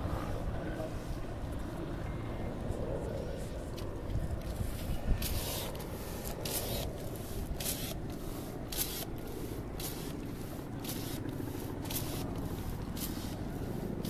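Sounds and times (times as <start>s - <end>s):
water spraying in hissing spurts: 4.5s - 14.0s.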